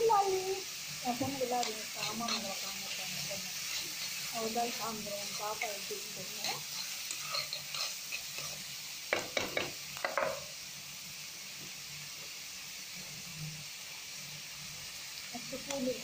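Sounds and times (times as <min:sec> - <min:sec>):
onions sizzling in oil: 0:00.0 - 0:16.0
spatula scraping pan: 0:01.1 - 0:10.4.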